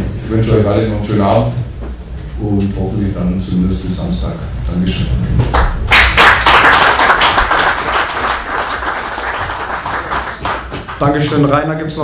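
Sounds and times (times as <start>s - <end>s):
small group applauding: 5.5s - 11.4s.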